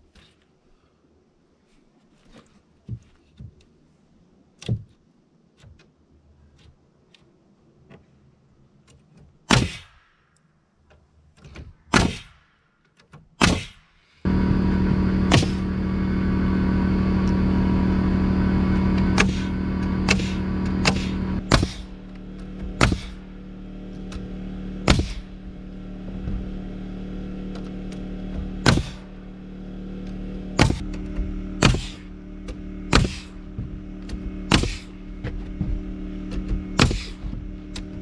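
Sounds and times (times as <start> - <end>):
nail gun shots: 9.5 - 10.3, 11.9 - 12.7, 13.3 - 13.9, 20.1 - 21.9, 22.8 - 23.2, 24.9 - 25.2, 28.6 - 29.0, 30.6 - 30.9, 31.6 - 32.0, 32.9 - 33.3, 34.5 - 34.9, 36.8 - 37.2
air compressor motor running: 14.3 - 38.0.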